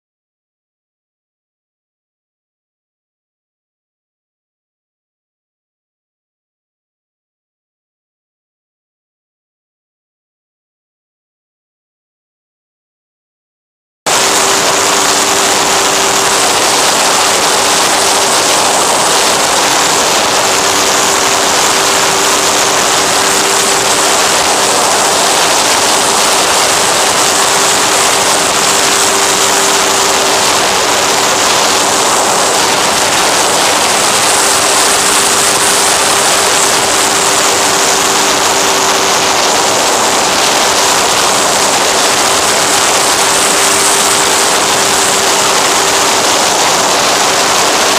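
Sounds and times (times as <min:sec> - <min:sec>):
propeller motor hum: 0:14.1 - 0:47.9
wind rush on microphone: 0:14.1 - 0:47.9.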